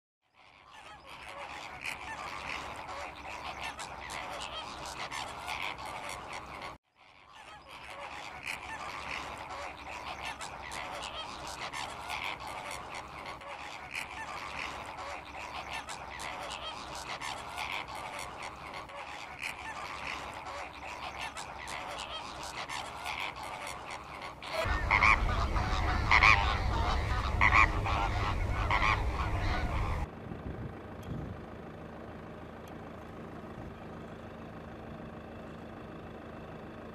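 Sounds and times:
flamingos honking: 0.3s - 30.1s
low rumble: 24.7s - 31.4s.

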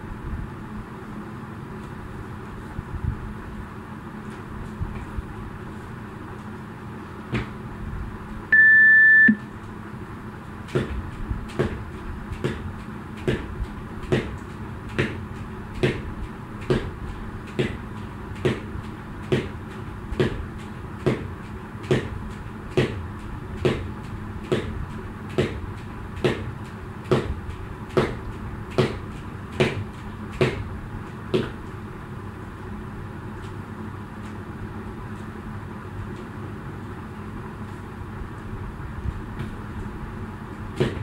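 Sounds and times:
electronic timer beep: 8.5s - 9.4s
jump rope slapping floor: 10.6s - 31.8s, 40.7s - 41.0s.

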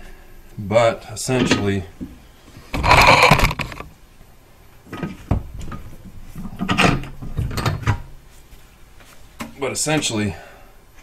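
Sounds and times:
scraping rustle: 2.6s - 3.9s
sharp clicks: 2.8s - 3.9s.

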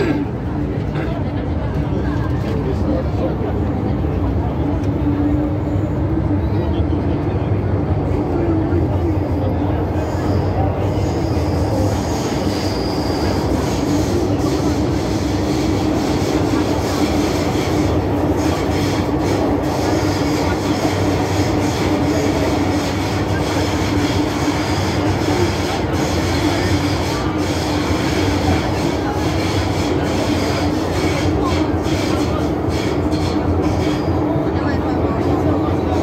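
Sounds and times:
constant hum: 0.0s - 36.0s
wheels rumbling on rail: 0.0s - 36.0s
faint high-pitched wheel squeal: 10.0s - 14.4s.

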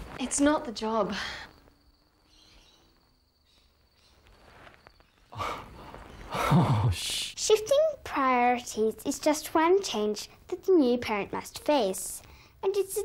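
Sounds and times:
faint hiss: 4.4s - 7.6s.

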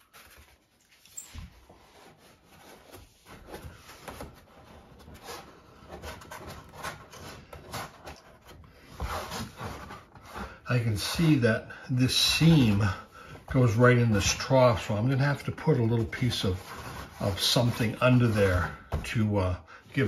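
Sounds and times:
foam mats rubbing and scuffing: 1.2s - 11.5s.

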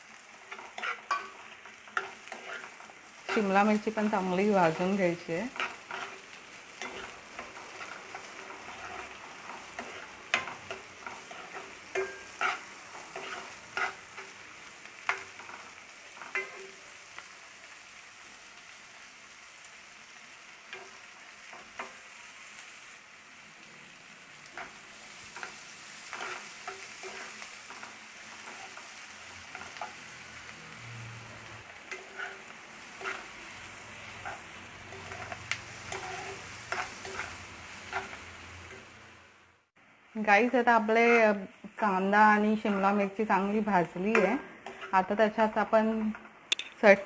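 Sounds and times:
vegetables sizzling in oil: 0.0s - 47.0s
steel spoon scraping a pan: 0.1s - 17.2s, 20.7s - 22.2s, 24.2s - 30.4s, 31.6s - 39.0s, 44.0s - 45.3s.

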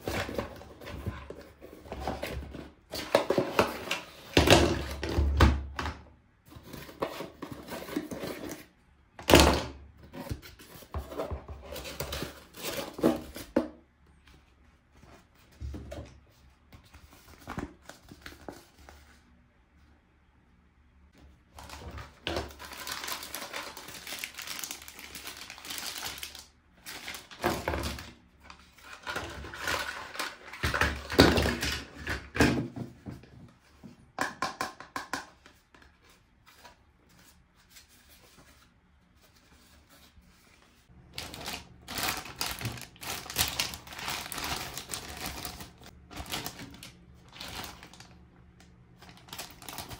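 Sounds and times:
packaging crinkling and tearing: 21.6s - 32.1s, 41.1s - 48.2s, 49.0s - 49.9s.

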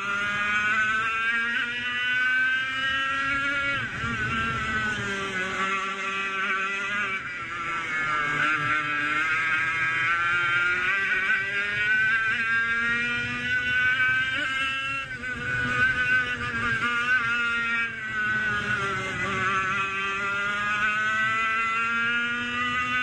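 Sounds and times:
racing kart engine revving: 0.0s - 23.0s.

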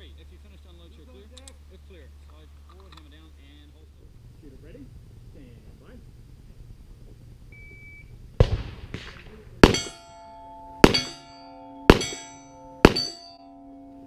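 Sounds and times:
handgun shots: 8.4s - 10.0s, 10.8s - 11.3s, 11.9s - 13.2s
steel target ringing clang: 9.6s - 14.0s.

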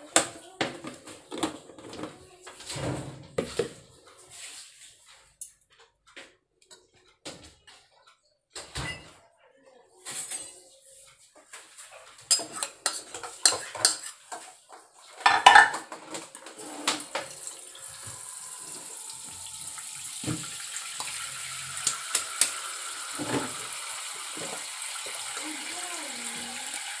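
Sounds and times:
utensils clinking in metal bowl: 11.7s - 18.3s.

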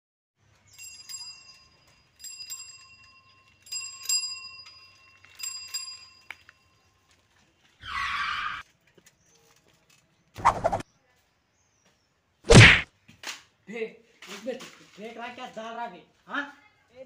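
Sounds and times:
bicycle bell ringing: 0.6s - 7.0s.

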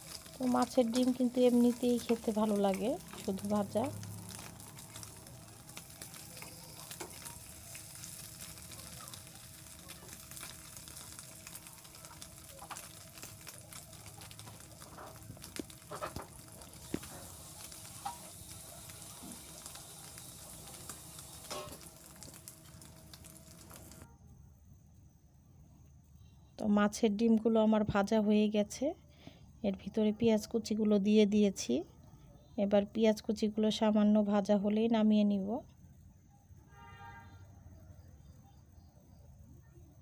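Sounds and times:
fish roe frying in oil: 0.0s - 24.1s.

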